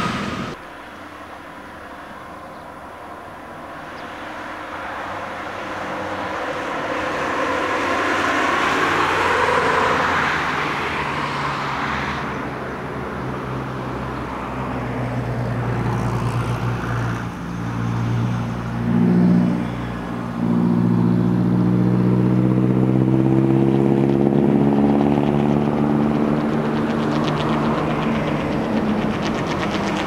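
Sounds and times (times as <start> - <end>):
bus diesel engine droning: 0.0 - 3.7, 17.2 - 27.2.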